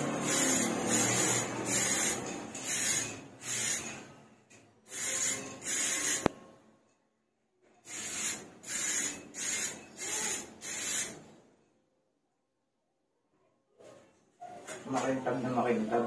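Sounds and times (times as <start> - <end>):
aerosol spray hissing: 0.2 - 3.8, 4.9 - 6.3, 7.9 - 11.2
spray can click: 6.1 - 6.4.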